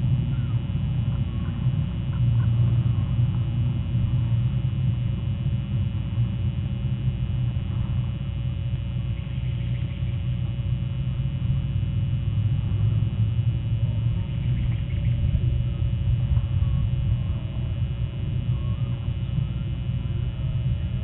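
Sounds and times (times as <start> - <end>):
faint hum tones: 0.0 - 21.0
low rumble: 0.0 - 21.0.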